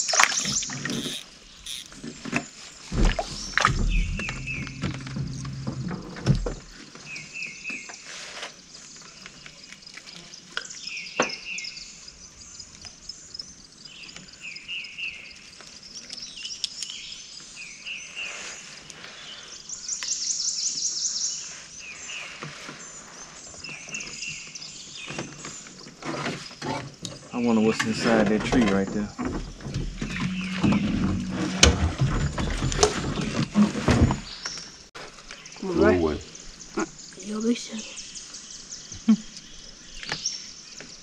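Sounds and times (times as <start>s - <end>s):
songbirds chirping: 0.0s - 41.0s
rapid bird trill: 0.4s - 1.9s
low rumble: 3.0s - 6.8s.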